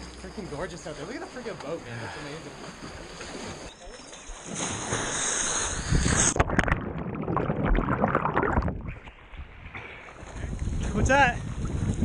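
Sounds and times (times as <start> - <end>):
splash into water: 4.3 - 9.0
muffled underwater bubbling: 5.7 - 9.0.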